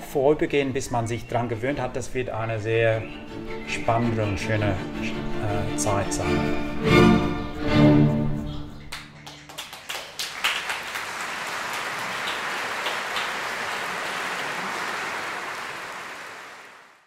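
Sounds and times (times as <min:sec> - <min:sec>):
string ensemble chord: 0:03.3 - 0:08.4
audience clapping: 0:08.8 - 0:17.0.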